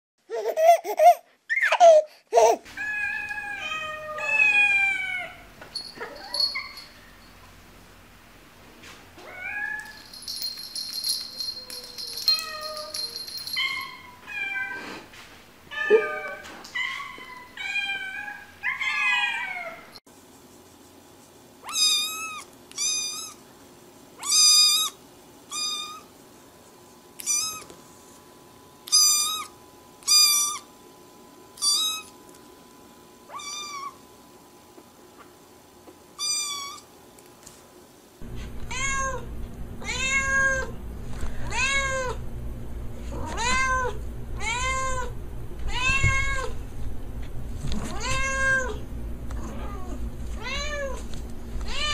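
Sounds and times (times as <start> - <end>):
cats meowing: 2.8 - 6.8, 15.7 - 19.9, 38.6 - 40.7, 43.1 - 45.1, 47.8 - 48.8.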